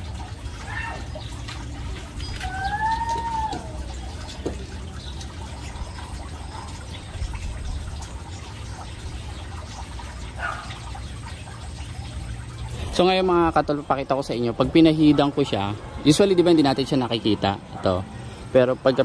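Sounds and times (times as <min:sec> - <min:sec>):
low outdoor hum: 0:00.0 - 0:19.0
animal call falling in pitch: 0:02.4 - 0:04.0.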